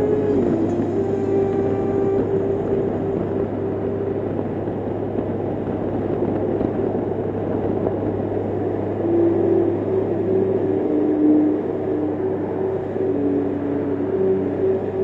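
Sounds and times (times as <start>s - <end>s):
motorcycle engine hum: 0.0s - 15.0s
wind and road noise: 0.0s - 15.0s
faint steady tone: 8.0s - 15.0s.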